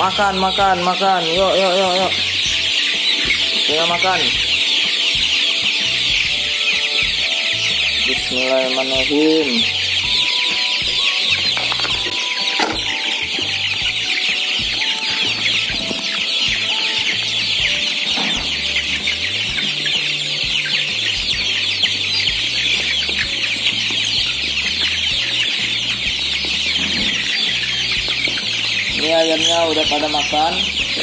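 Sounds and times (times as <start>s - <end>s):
chicks peeping: 0.0s - 31.0s.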